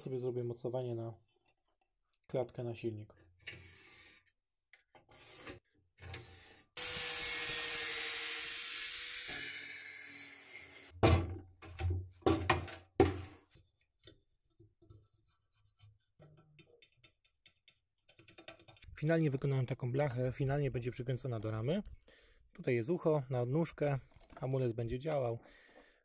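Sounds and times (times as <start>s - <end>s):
angle grinder cutting steel: 6.8s - 10.9s.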